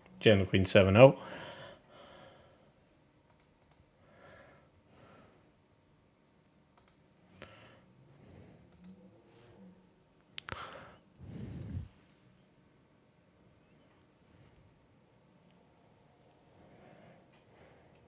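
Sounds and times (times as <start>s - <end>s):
faint computer clicks: 3.3s - 3.9s, 6.7s - 7.0s, 8.5s - 9.0s.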